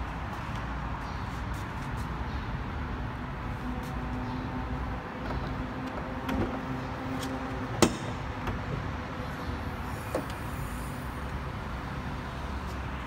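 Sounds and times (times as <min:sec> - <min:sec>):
car bonnet clicks and knocks: 0:05.2 - 0:08.8.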